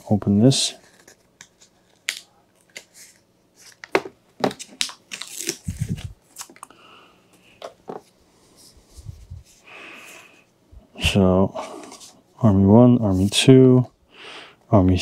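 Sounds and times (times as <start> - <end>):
plastic wrapping crinkling: 1.9 - 6.7.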